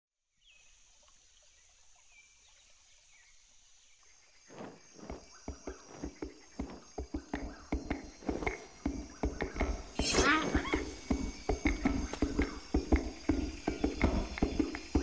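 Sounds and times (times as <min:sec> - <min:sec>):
high-pitched insect drone: 0:04.6 - 0:15.0.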